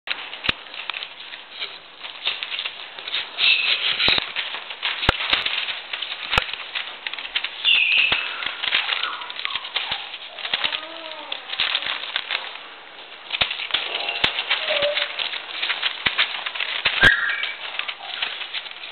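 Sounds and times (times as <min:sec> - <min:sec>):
newspaper crackling and rustling: 0:00.1 - 0:18.9
puppy paws clicking: 0:00.1 - 0:18.9
puppies squeaking: 0:03.4 - 0:04.2, 0:07.6 - 0:11.2, 0:13.9 - 0:15.4, 0:16.9 - 0:18.4.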